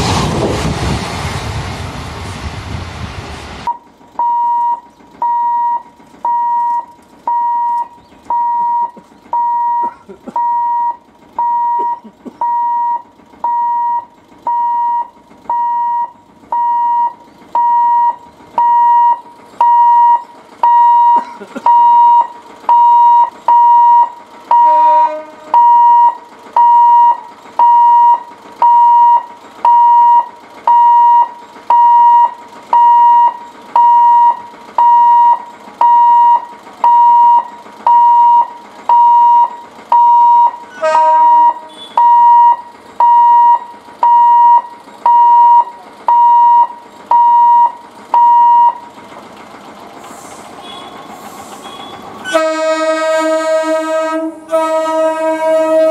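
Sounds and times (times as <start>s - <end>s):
approaching train: 0.0s - 55.9s
level crossing alarm beeping: 3.7s - 48.8s, 50.6s - 52.4s
train horn toots: 24.6s - 25.9s, 40.7s - 42.2s, 51.6s - 55.9s.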